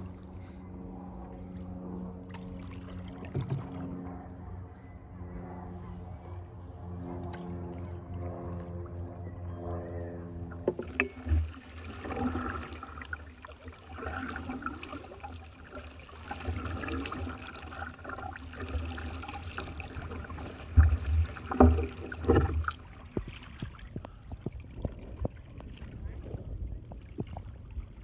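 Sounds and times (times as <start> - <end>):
water sloshing against hull: 0.0 - 4.3, 6.8 - 28.0
paddle splashes: 10.5 - 26.2.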